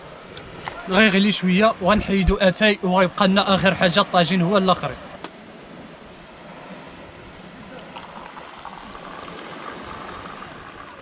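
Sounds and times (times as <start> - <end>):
tea pouring into glass: 7.4 - 11.0.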